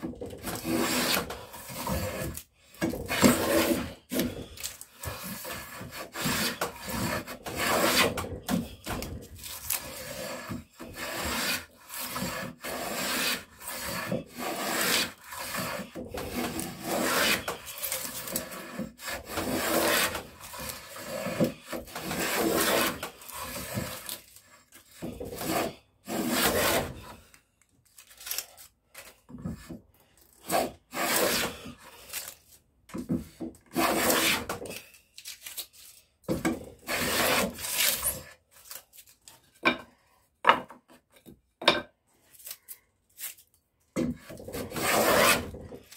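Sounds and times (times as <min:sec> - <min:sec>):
hand plane shaving wood: 0:00.0 - 0:27.3, 0:30.4 - 0:32.3, 0:33.0 - 0:34.9, 0:36.4 - 0:38.4, 0:44.0 - 0:45.9.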